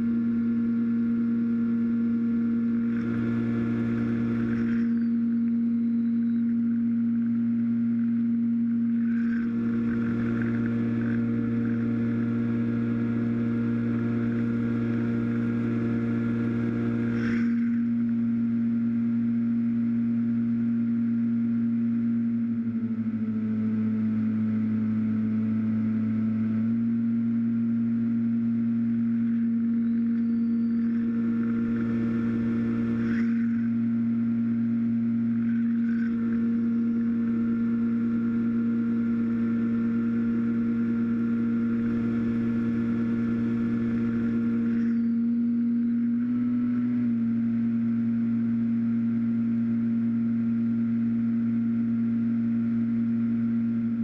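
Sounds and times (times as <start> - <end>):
electric motor and propeller drone: 0.0 - 54.0
high whine: 0.0 - 54.0.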